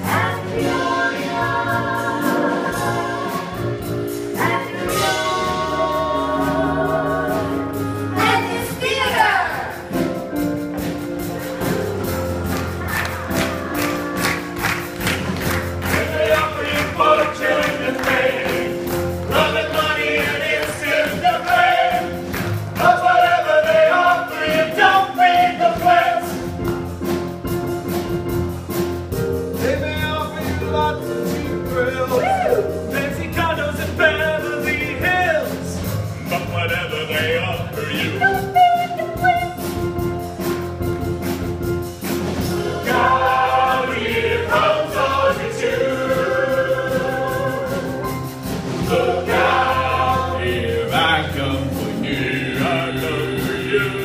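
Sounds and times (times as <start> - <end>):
cast singing together: 0.0 - 9.2, 13.0 - 26.4, 42.4 - 54.0
band accompaniment: 0.0 - 54.0.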